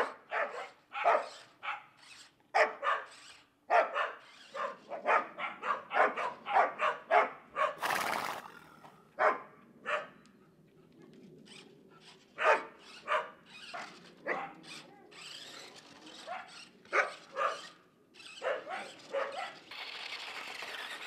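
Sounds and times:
dog barking: 0:00.0 - 0:01.9, 0:02.6 - 0:07.8, 0:09.2 - 0:10.2, 0:12.4 - 0:14.6, 0:16.3 - 0:17.8, 0:18.4 - 0:19.6.

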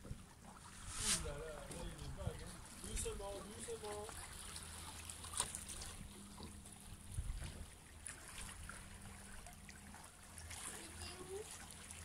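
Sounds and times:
faint water sounds: 0:00.0 - 0:12.0.

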